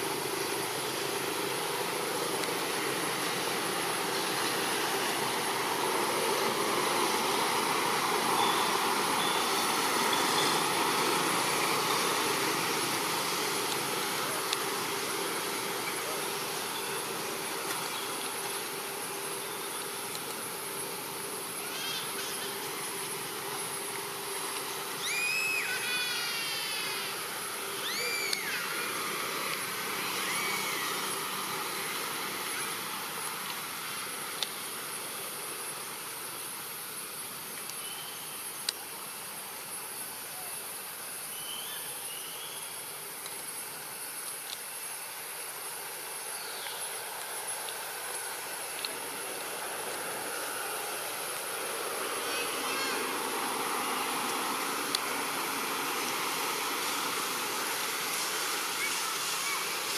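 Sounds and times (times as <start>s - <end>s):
high thin insect drone: 0.0s - 59.9s
wide even hiss: 0.0s - 59.9s.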